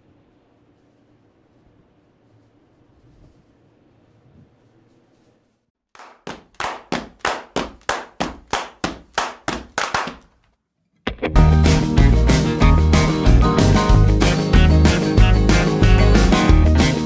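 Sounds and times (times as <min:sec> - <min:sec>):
band music with guitar: 0:11.1 - 0:17.0.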